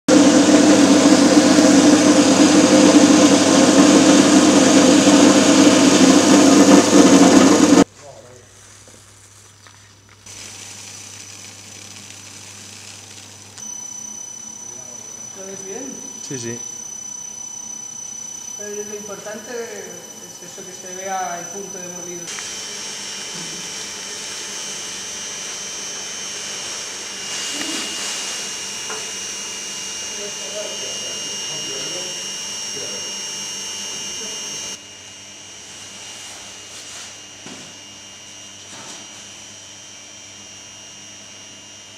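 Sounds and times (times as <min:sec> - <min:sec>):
electric grain mill running: 0:00.1 - 0:07.9, 0:09.6 - 0:35.3
thin high whine: 0:00.1 - 0:07.9, 0:10.3 - 0:34.9
steady rushing hiss: 0:10.2 - 0:13.6.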